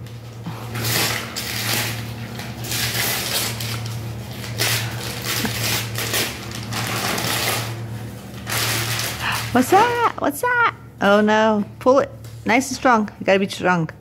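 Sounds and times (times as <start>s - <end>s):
steady low hum: 0.0s - 14.0s
foil gift wrap tearing and crinkling: 0.5s - 10.1s.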